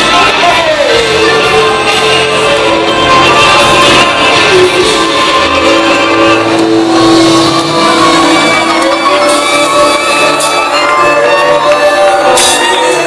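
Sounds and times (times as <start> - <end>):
crowd shouting along: 0.0 - 13.0
live band playing amplified music: 0.0 - 13.0
singers on stage: 0.0 - 13.0.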